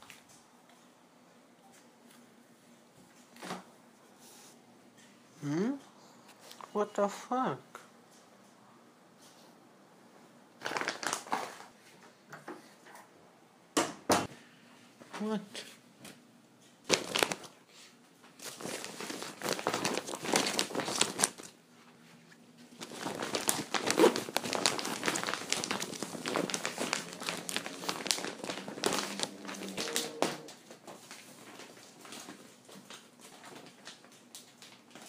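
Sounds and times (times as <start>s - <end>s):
plastic bag crinkling: 10.6s - 11.8s, 16.9s - 17.6s, 18.4s - 21.6s, 22.7s - 35.0s.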